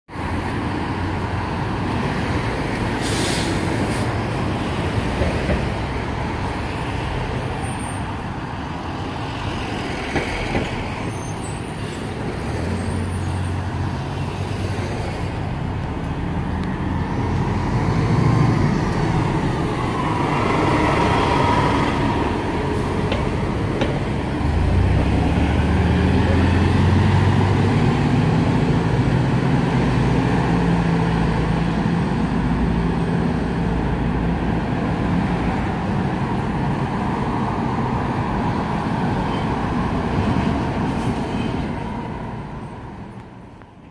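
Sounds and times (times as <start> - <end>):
street traffic: 0.1 - 43.9
bus diesel engine driving past: 0.2 - 43.9
air brake hiss: 3.0 - 4.1.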